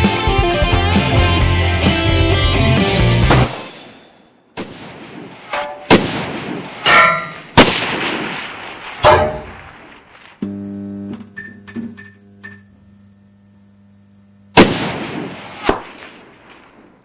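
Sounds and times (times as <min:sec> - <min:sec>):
gunshots with echoing tail: 0:04.6 - 0:10.4, 0:14.6 - 0:17.0
metallic ringing: 0:06.8 - 0:07.5.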